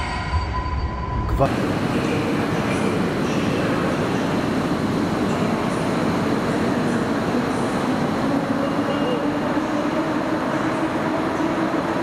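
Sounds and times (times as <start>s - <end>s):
electric train rumbling slowly: 0.0s - 12.0s.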